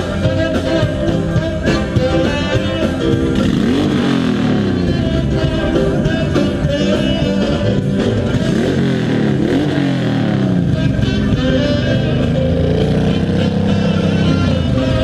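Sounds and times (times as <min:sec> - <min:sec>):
live rock band music: 0:00.0 - 0:15.0
motorcycle engine revving: 0:00.0 - 0:15.0.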